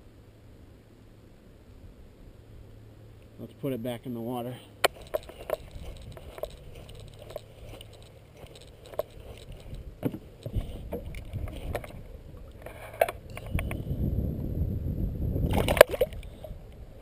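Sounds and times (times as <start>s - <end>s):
camera knocks and rustles: 4.8s - 13.8s
wind rumble on microphone: 5.0s - 8.0s, 8.8s - 17.0s.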